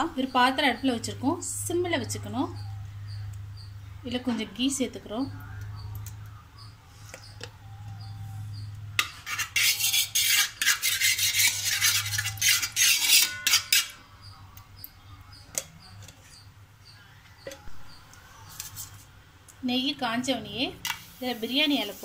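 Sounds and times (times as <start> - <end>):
metal spoon scraping a pot: 6.9 - 16.6, 17.4 - 19.1.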